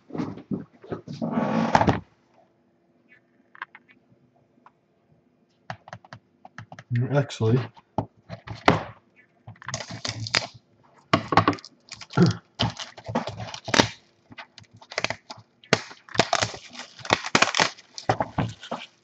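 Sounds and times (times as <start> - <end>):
plastic wrap crinkling and tearing: 9.6 - 10.6, 11.2 - 19.0.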